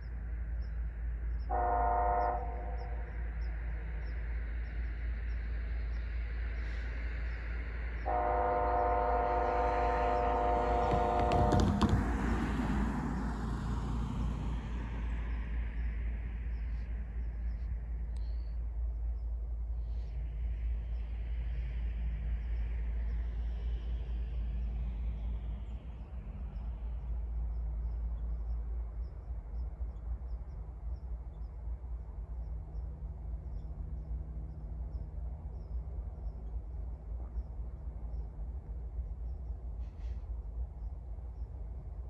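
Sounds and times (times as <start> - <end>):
distant traffic rumble: 0.0 - 42.0
faint low hum: 0.0 - 42.0
passing vehicle: 6.0 - 18.2
faint high ticks: 16.6 - 18.6.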